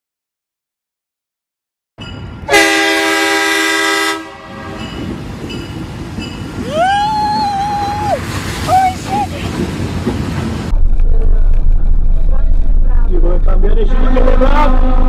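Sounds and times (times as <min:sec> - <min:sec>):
train rumbling past: 0:02.0 - 0:15.0
locomotive air horn blast: 0:02.5 - 0:05.0
person yelling: 0:06.6 - 0:09.4.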